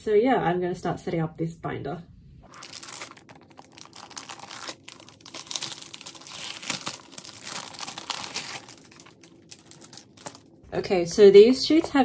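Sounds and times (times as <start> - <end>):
plastic sleeves crinkling: 2.4 - 10.8.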